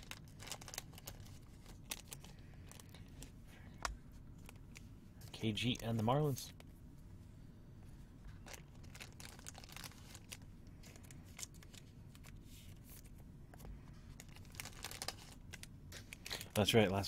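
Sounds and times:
paper crinkling: 0:00.0 - 0:03.3, 0:08.3 - 0:16.8.

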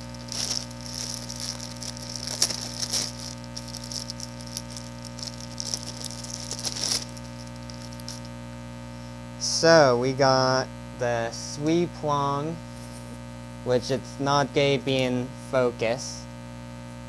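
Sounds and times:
plastic wrapping crinkling: 0:00.0 - 0:08.3
electrical hum: 0:00.0 - 0:17.0.

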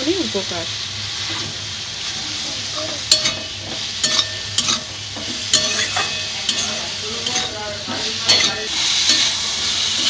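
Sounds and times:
vegetables sizzling in oil: 0:00.0 - 0:10.0
spatula scraping pan: 0:03.1 - 0:10.0.

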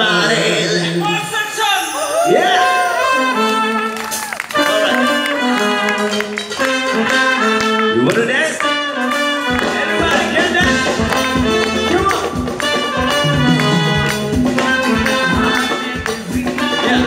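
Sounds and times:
live band playing through speakers: 0:02.2 - 0:17.0
bass drum beat: 0:09.6 - 0:16.7.

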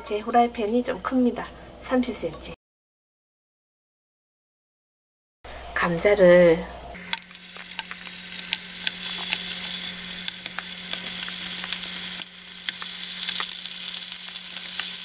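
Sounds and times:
potatoes sizzling in hot oil: 0:07.1 - 0:15.0.

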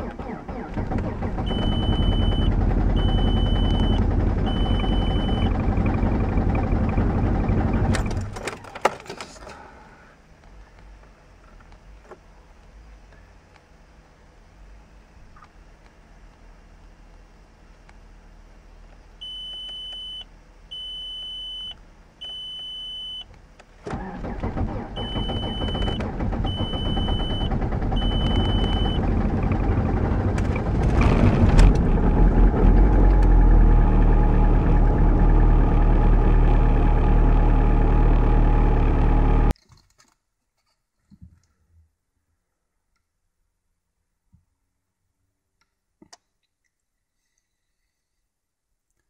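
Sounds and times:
diesel engine cranking and idling: 0:00.0 - 0:10.8, 0:23.5 - 0:39.6
dashboard warning chime beeping: 0:01.5 - 0:06.0, 0:19.2 - 0:23.3, 0:25.0 - 0:29.0.

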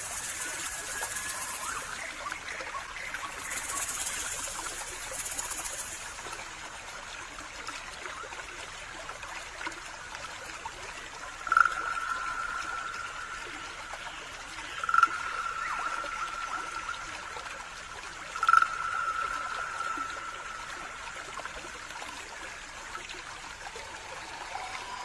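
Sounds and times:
high hiss: 0:00.0 - 0:02.0, 0:03.2 - 0:06.3
trickling water-like hiss: 0:00.0 - 0:25.0.

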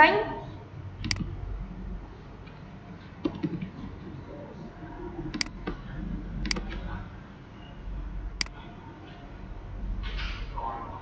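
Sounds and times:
low steady hum: 0:00.0 - 0:03.0
computer mouse and keyboard clicks: 0:01.0 - 0:01.3, 0:05.3 - 0:05.6, 0:06.4 - 0:06.8.

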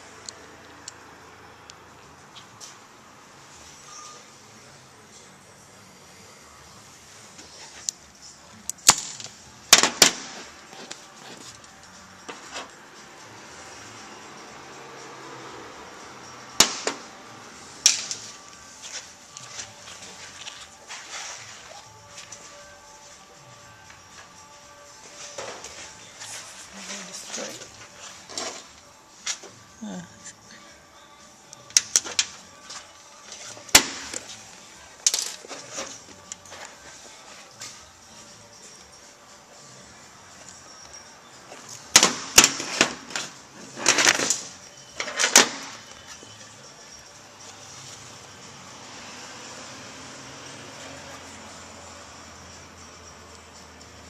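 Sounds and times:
metal screws clinking on steel: 0:35.0 - 0:36.8.

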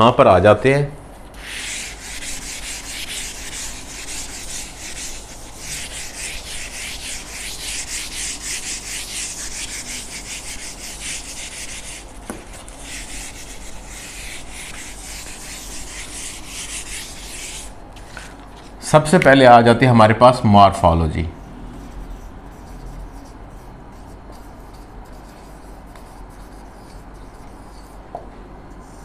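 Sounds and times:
eraser rubbing on whiteboard: 0:01.4 - 0:17.8, 0:21.8 - 0:28.0, 0:28.7 - 0:29.0.

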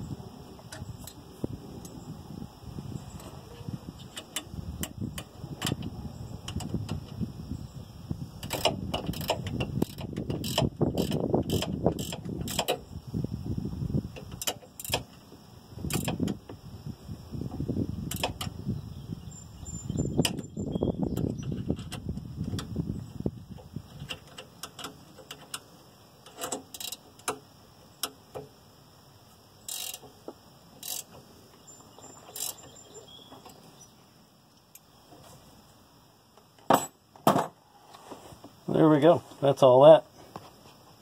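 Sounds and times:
rustling handling noise: 0:37.8 - 0:41.0.

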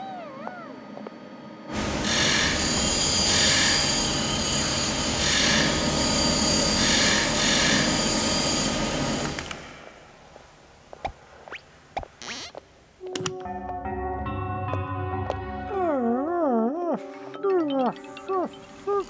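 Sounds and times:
workshop machinery running: 0:01.7 - 0:09.6.

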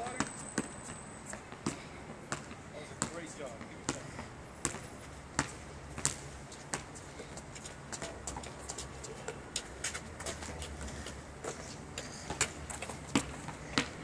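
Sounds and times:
basketball bouncing on asphalt: 0:00.0 - 0:14.0
footstep scuffs: 0:04.7 - 0:14.0.

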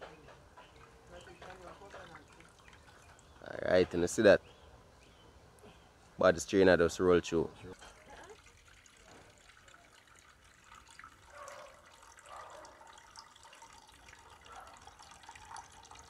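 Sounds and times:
liquid trickling into metal pot: 0:00.6 - 0:03.5, 0:07.7 - 0:16.0.

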